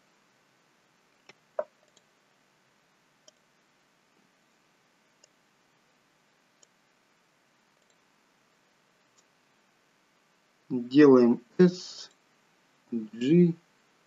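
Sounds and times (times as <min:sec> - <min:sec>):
computer mouse clicks: 0:01.2 - 0:02.1, 0:03.2 - 0:03.4, 0:05.2 - 0:05.4, 0:06.6 - 0:06.8, 0:07.8 - 0:08.0.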